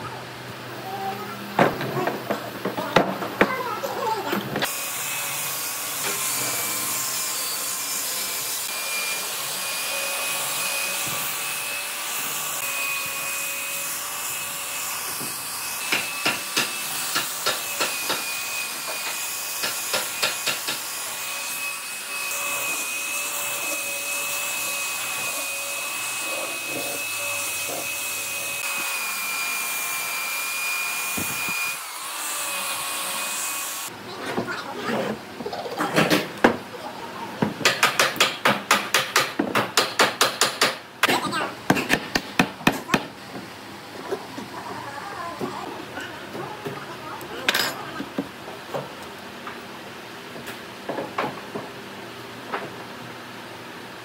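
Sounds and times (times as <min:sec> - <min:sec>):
belt sander on wood: 0:04.6 - 0:34.0.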